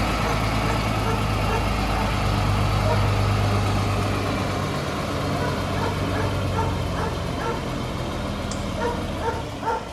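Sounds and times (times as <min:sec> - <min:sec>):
truck engine idling: 0:00.0 - 0:09.9
dog barking: 0:00.2 - 0:02.2, 0:02.8 - 0:03.1, 0:05.4 - 0:07.7, 0:08.8 - 0:09.9.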